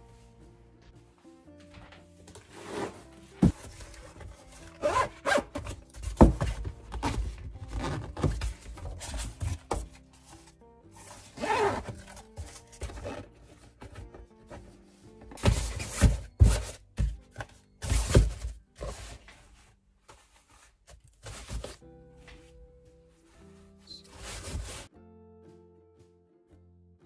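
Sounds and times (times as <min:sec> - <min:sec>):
light background music: 0:00.0 - 0:27.0
fabric box rustling: 0:02.3 - 0:21.8, 0:23.7 - 0:24.9.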